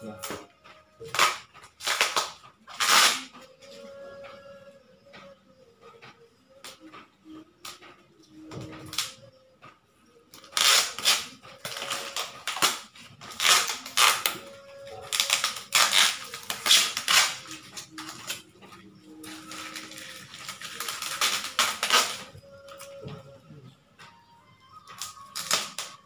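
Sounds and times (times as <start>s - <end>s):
tape tearing and plastic crinkling: 1.0s - 3.4s, 10.4s - 18.4s, 19.2s - 22.3s, 25.0s - 26.0s.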